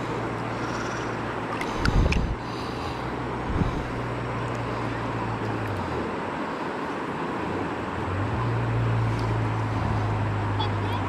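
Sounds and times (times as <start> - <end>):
wind rumbling on microphone: 0.0 - 6.4
river water rushing: 0.0 - 11.0.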